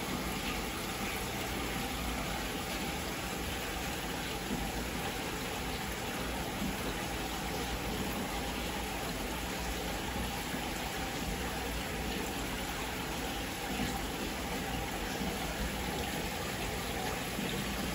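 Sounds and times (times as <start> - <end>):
aquarium filter bubbling water: 0.0 - 17.9.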